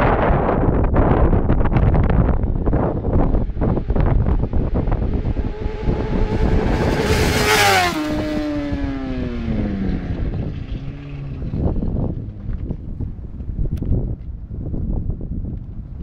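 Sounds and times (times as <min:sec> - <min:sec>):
motorcycle engine passing by: 0:01.6 - 0:13.0.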